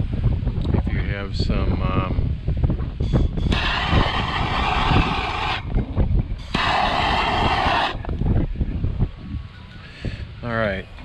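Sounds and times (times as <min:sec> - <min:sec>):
wind rumble on microphone: 0:00.0 - 0:11.0
gas torch hissing: 0:03.1 - 0:05.8, 0:06.4 - 0:08.2.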